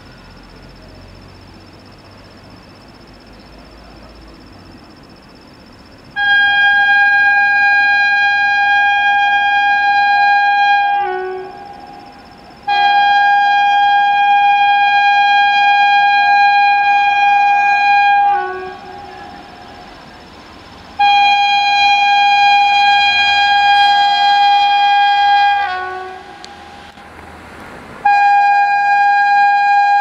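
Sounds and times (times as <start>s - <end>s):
locomotive horn blasts: 6.2s - 19.9s, 21.0s - 27.0s, 28.0s - 30.0s.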